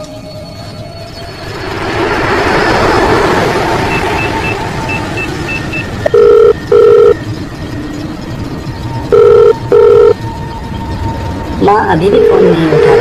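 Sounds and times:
vehicle engine and road noise: 0:00.0 - 0:13.0
telephone ringing: 0:06.0 - 0:07.2, 0:09.1 - 0:10.2.

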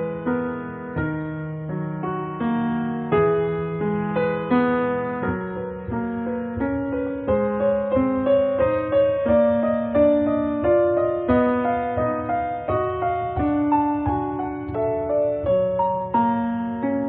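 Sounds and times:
gentle piano music: 0:00.0 - 0:17.0.

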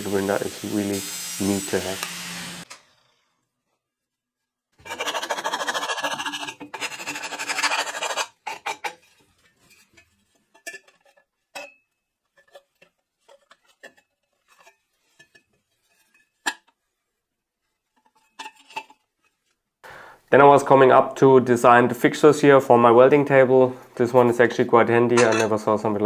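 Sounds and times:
angle grinder grinding metal: 0:00.0 - 0:02.8
metal tubes clinking: 0:06.1 - 0:16.7.

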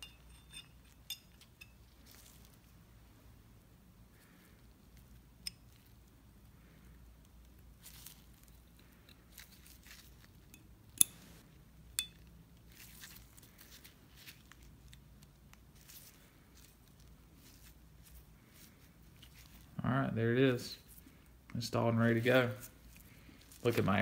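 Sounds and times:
glove rustling: 0:07.7 - 0:10.4, 0:12.6 - 0:19.8, 0:20.6 - 0:24.0.

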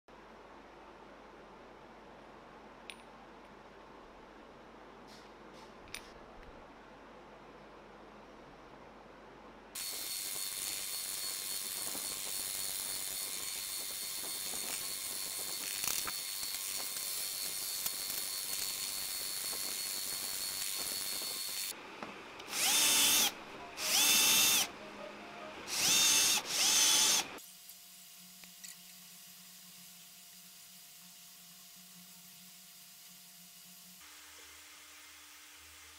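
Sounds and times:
drill press boring steel: 0:09.8 - 0:21.7, 0:22.4 - 0:24.7, 0:25.6 - 0:27.4.

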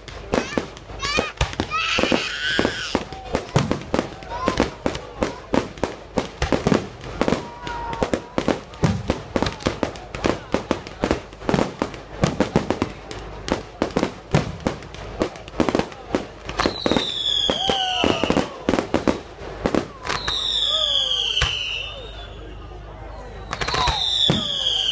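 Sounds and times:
fireworks bangs and crackles: 0:00.0 - 0:24.9
falling whistle: 0:20.1 - 0:24.9.

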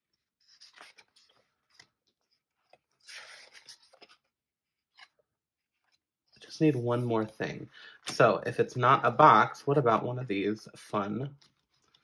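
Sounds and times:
paper rustling: 0:00.1 - 0:06.4.

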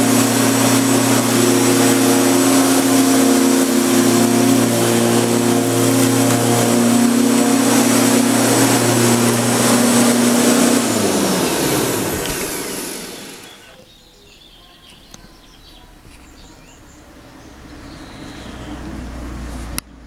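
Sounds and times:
electric lawn mower winding down: 0:00.0 - 0:13.7.

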